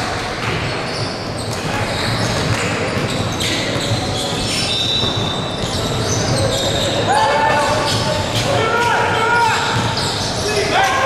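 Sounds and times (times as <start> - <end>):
sneakers squeaking: 0.0 - 11.0
basketball bouncing on wood floor: 0.4 - 6.7, 9.7 - 10.1
players' voices: 1.4 - 11.0.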